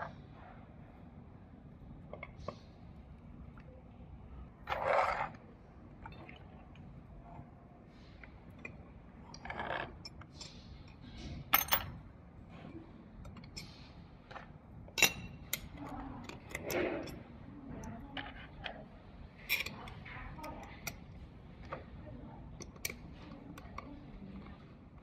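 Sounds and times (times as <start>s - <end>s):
metal parts clinking: 10.0s - 12.0s, 19.4s - 21.0s.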